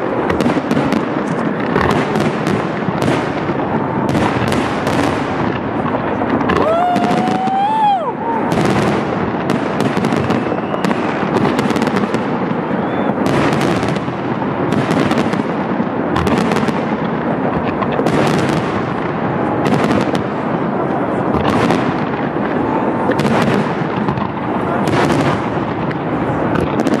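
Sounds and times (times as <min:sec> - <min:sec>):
continuous rumbling: 0:00.0 - 0:27.0
fireworks bangs and crackling: 0:00.0 - 0:27.0
firework whistle: 0:06.5 - 0:14.0.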